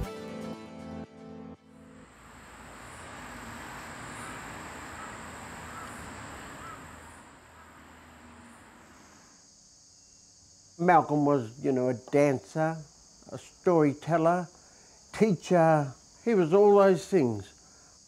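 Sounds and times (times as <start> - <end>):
even outdoor hiss: 1.7 - 18.0
insect drone: 1.7 - 18.0
faint bird calls: 2.8 - 9.2.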